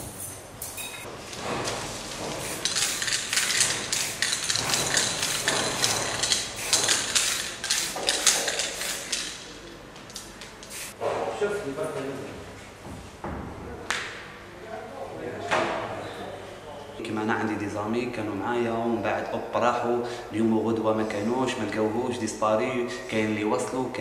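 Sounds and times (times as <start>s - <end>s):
aerosol spray can hissing: 2.4s - 6.0s, 6.6s - 9.2s, 10.6s - 11.0s.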